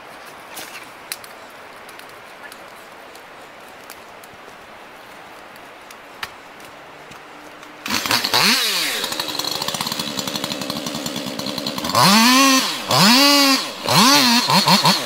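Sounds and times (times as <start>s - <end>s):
chainsaw revving: 7.8s - 15.0s.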